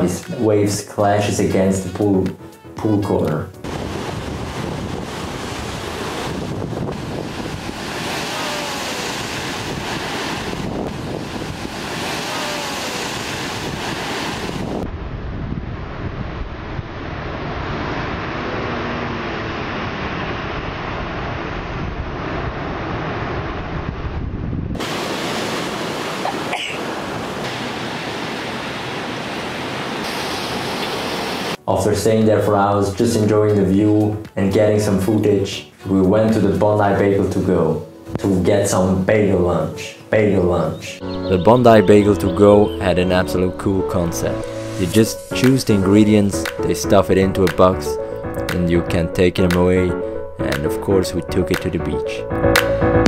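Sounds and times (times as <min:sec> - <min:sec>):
wind on microphone: 0:03.6 - 0:18.8, 0:19.8 - 0:26.5
ocean waves breaking on wall: 0:03.6 - 0:23.8, 0:24.7 - 0:31.6.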